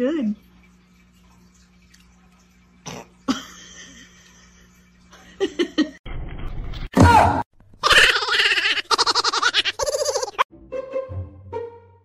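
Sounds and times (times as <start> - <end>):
person laughing: 7.8 - 10.4.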